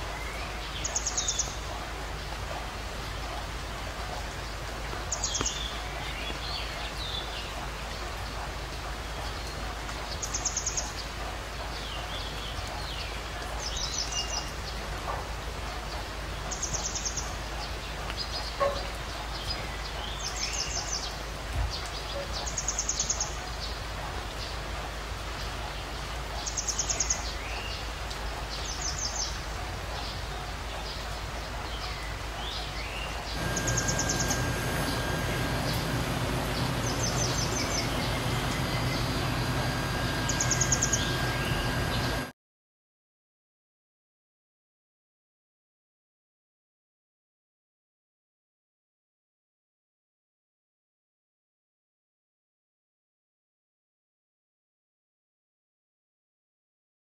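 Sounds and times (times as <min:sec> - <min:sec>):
steady outdoor hiss: 0:00.0 - 0:42.2
birds trilling: 0:33.3 - 0:42.3.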